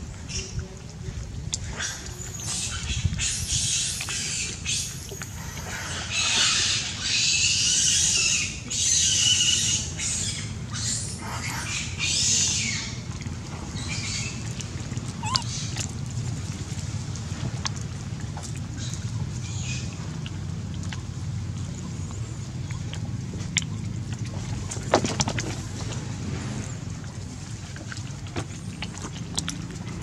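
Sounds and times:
macaques screaming: 15.2s - 15.7s.

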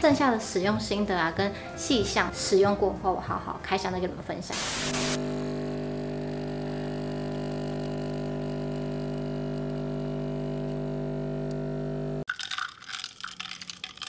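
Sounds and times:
espresso machine pump humming: 4.6s - 12.3s.

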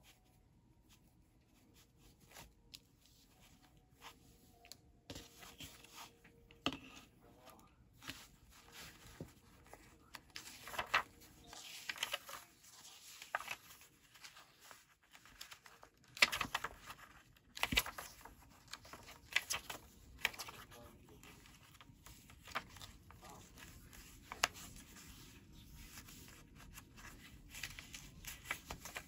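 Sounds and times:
paper pages rustling: 1.0s - 6.4s, 8.0s - 29.0s
paper flicks and taps: 10.4s - 11.1s, 16.1s - 20.6s.

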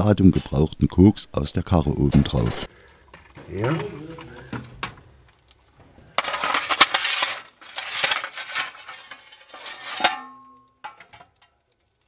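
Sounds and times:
coke clattering on a steel shovel: 6.2s - 11.7s
metallic clang: 7.8s - 11.6s.

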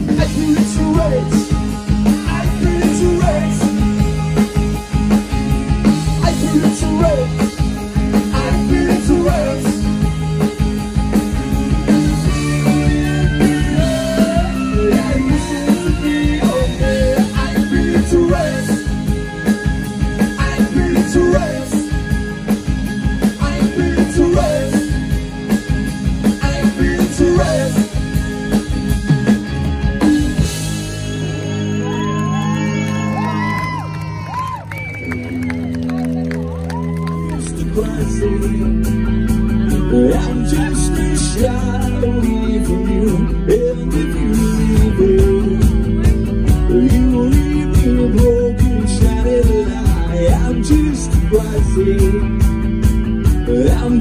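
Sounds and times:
driving drum beat: 0.0s - 54.0s
rock band playing live: 0.0s - 54.0s
person singing: 8.1s - 9.9s, 12.2s - 18.9s, 23.2s - 25.1s, 37.3s - 52.5s.

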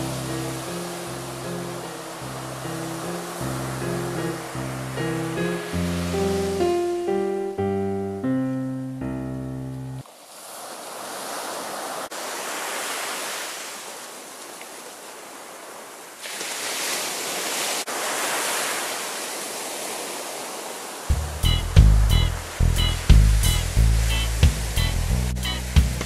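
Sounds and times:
sea surf breaking on beach: 0.0s - 7.3s, 10.0s - 21.6s, 22.4s - 26.0s
instrumental background music: 0.0s - 10.0s, 21.1s - 26.0s.

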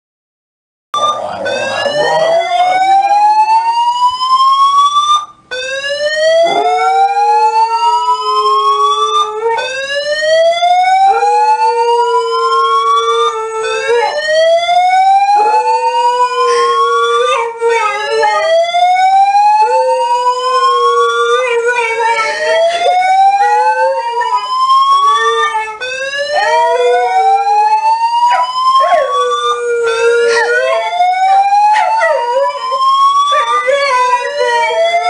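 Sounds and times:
siren wailing: 1.0s - 35.0s
dog howling: 6.2s - 9.7s, 11.0s - 35.0s.

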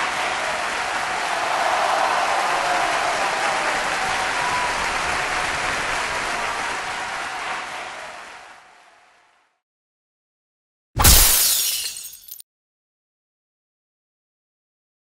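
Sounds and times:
crowd applause: 0.0s - 9.6s.

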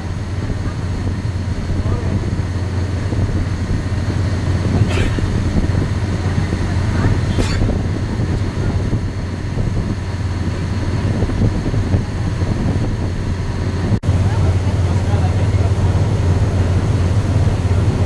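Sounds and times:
boat engine droning: 0.0s - 18.0s.

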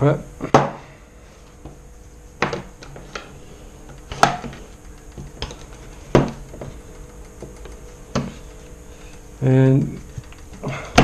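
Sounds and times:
parts clicking on wooden table: 2.4s - 11.0s.

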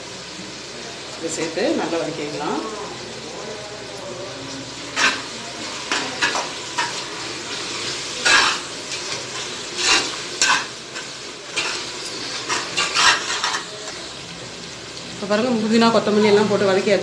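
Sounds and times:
food sizzling: 0.0s - 17.0s
metal spatula scraping pot: 4.9s - 14.0s.

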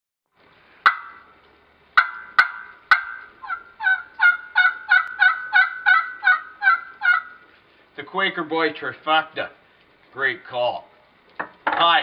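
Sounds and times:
turkey call clucks: 0.8s - 1.4s, 2.0s - 7.5s
turkey call yelps: 0.8s - 1.4s, 2.0s - 7.4s.

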